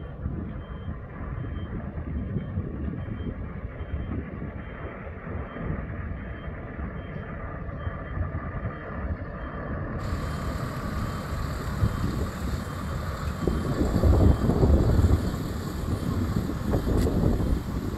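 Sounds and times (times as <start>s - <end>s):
diesel engine running: 0.0s - 17.9s.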